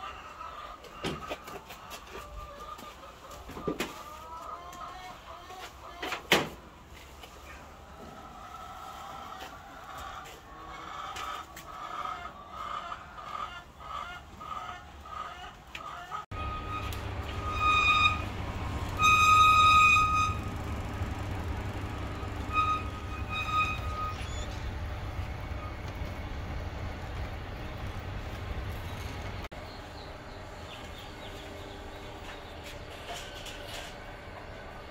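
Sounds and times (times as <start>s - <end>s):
chickens clucking: 0.0s - 19.1s, 19.7s - 34.9s
chicken loud held calls: 7.4s - 26.3s
incubator machinery hum: 16.3s - 34.9s.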